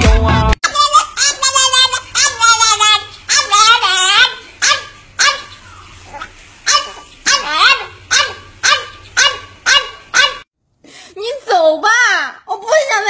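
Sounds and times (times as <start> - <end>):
dog barking: 1.0 - 10.5.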